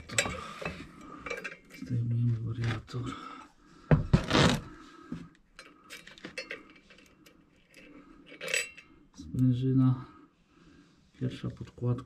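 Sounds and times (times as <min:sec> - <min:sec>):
metal parts clanking and scraping: 0:00.0 - 0:02.0, 0:05.6 - 0:09.0.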